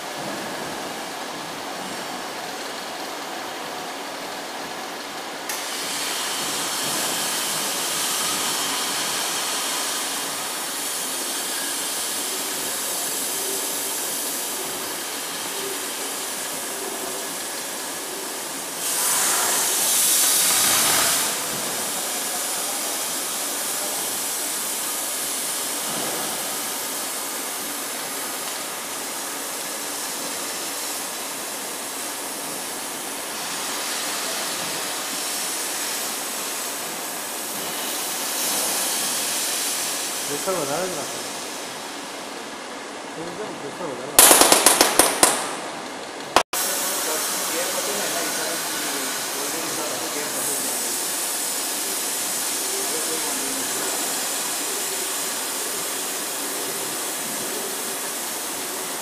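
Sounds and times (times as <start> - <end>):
plasma torch hissing: 5.5 - 42.1, 46.6 - 59.0.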